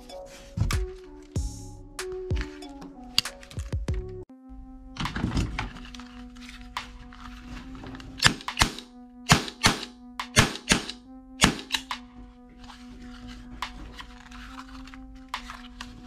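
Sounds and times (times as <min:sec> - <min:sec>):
droning background music: 0:00.0 - 0:16.0.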